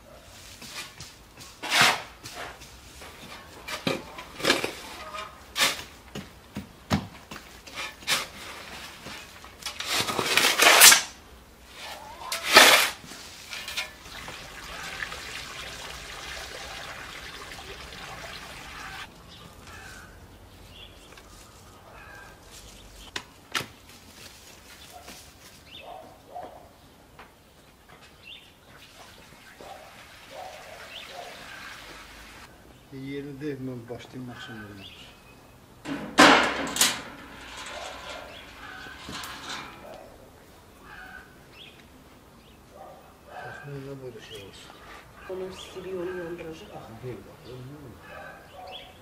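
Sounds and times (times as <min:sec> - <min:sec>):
leaves rustling: 0:00.0 - 0:06.4, 0:07.2 - 0:26.1, 0:35.8 - 0:48.3
water pouring from watering can: 0:14.0 - 0:19.1.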